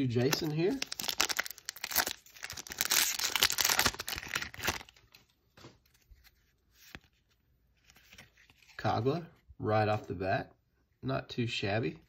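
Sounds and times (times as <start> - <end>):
foil wrapper crinkling and tearing: 0.1 - 5.2
cards rustling and clicking: 0.2 - 8.8.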